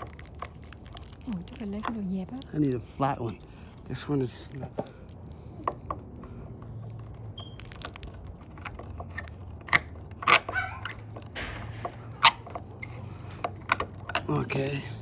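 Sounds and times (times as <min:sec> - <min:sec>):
screwdriver scraping and crunching: 0:00.0 - 0:02.0, 0:07.4 - 0:15.0.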